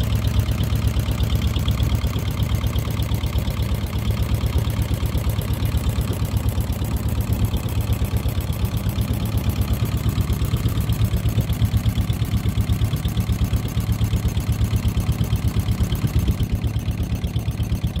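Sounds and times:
boat engine running at low speed: 0.0s - 18.0s.

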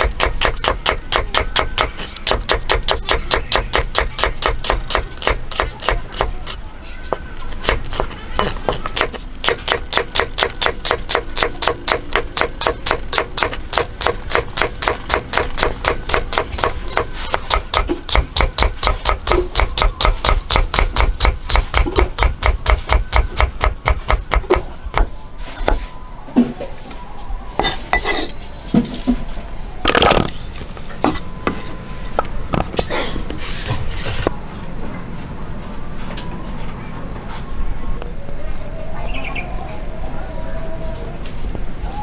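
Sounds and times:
cleaver chopping on wooden board: 7.1s - 25.8s.

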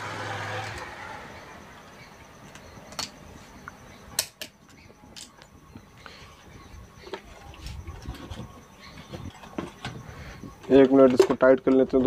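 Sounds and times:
small metal parts clicking: 2.4s - 3.2s.

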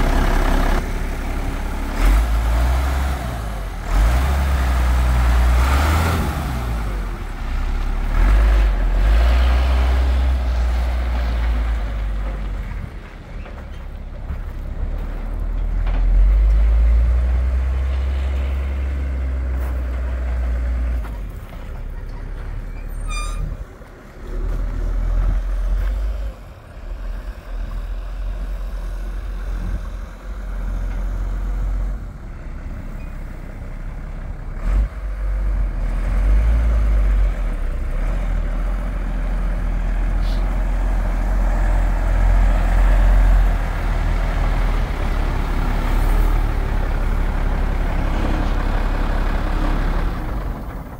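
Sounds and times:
truck engine rumbling: 0.0s - 50.9s
brief high squeal: 22.7s - 23.6s.

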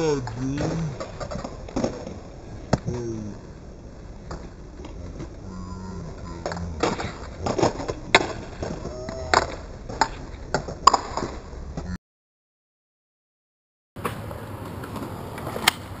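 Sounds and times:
skateboard clacking on concrete: 0.0s - 3.0s, 6.1s - 11.4s, 14.0s - 16.0s.

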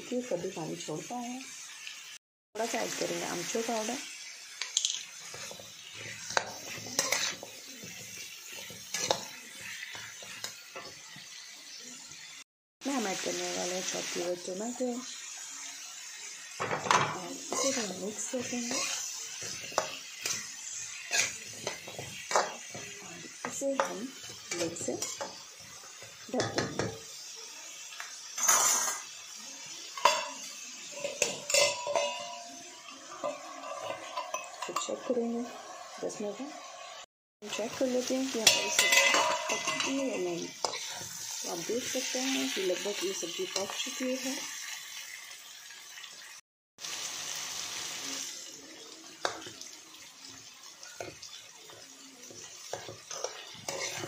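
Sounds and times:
oil sizzling: 0.0s - 54.0s
spatula scraping a pan: 5.2s - 11.4s, 16.6s - 27.2s, 28.4s - 29.1s, 29.8s - 36.0s, 37.4s - 44.2s, 50.7s - 54.0s
metal clinks on a pan: 31.0s - 32.5s, 38.4s - 40.1s.

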